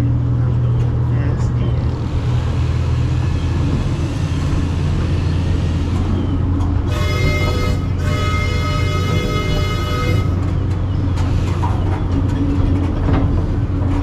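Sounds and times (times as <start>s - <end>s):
train motor rumbling: 0.0s - 14.0s
high-pitched horn tone: 6.9s - 10.5s.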